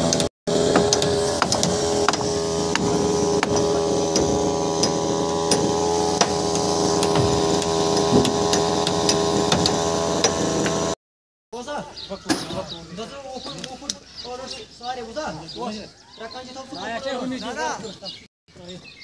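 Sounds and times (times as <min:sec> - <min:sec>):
sharp clicks and knocks: 0:00.0 - 0:10.8
steady mechanical hum: 0:00.0 - 0:11.0.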